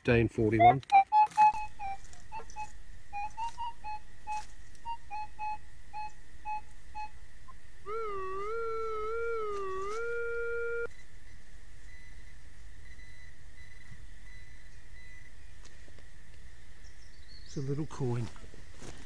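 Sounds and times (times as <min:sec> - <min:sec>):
metal detector beeps: 0:00.5 - 0:07.2, 0:11.8 - 0:15.3
metal detector wavering tone: 0:00.5 - 0:11.0.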